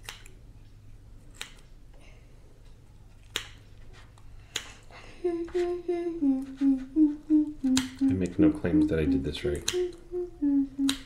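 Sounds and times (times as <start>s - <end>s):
scissors snipping: 0.0s - 0.4s, 1.3s - 1.7s.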